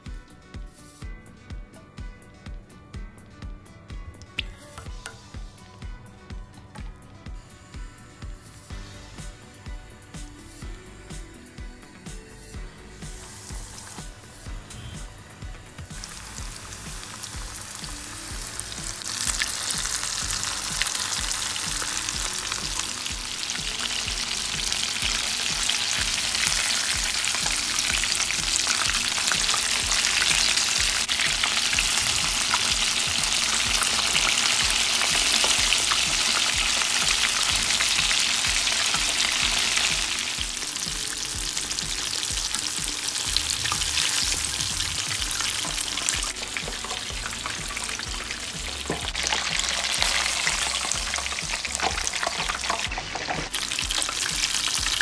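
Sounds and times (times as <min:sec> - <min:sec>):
chicken frying in hot oil: 0:15.8 - 0:55.0.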